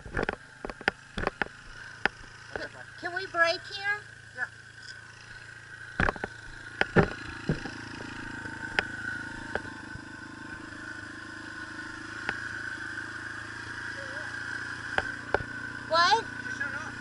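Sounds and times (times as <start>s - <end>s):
sharp knocks and clatters: 0.0s - 2.7s, 5.9s - 9.8s
dirt bike engine running: 0.0s - 17.0s.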